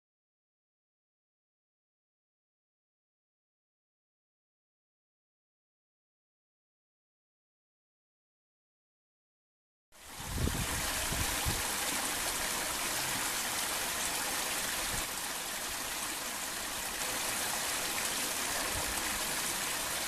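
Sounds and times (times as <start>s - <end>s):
water running into bamboo tube: 10.1s - 20.0s.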